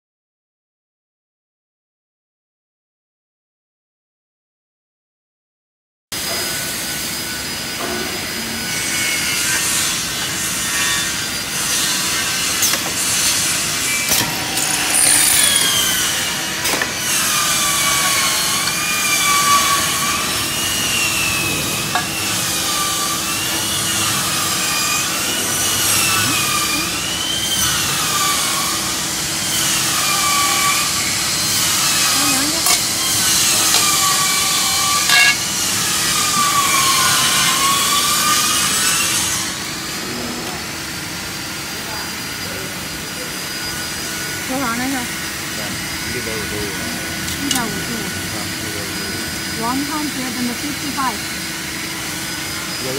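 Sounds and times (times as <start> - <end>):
drilling machine running: 6.2 - 52.9
high wavering squeal: 7.2 - 40.4.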